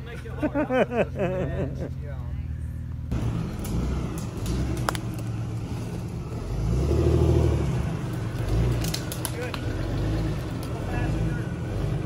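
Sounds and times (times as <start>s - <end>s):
off-road vehicle engine revving: 3.1s - 12.0s.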